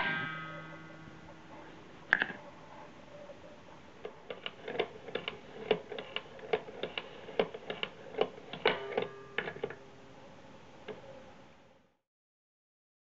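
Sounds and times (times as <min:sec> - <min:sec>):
faint ringing: 0:00.0 - 0:03.3, 0:08.7 - 0:11.5
wooden mechanism clicking and tapping: 0:04.0 - 0:09.8.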